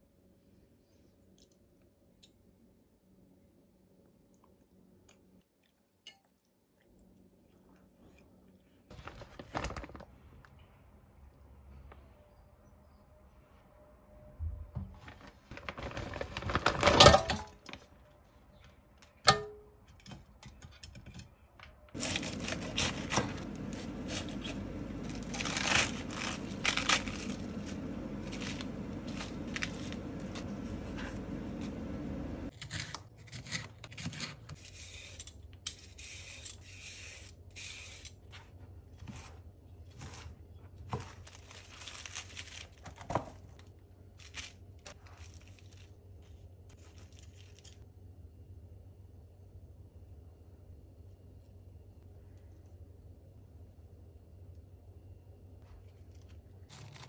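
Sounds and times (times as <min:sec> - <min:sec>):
frozen food clattering into basket: 0:15.0 - 0:17.8
lettuce rustling: 0:22.0 - 0:32.1, 0:38.4 - 0:47.8.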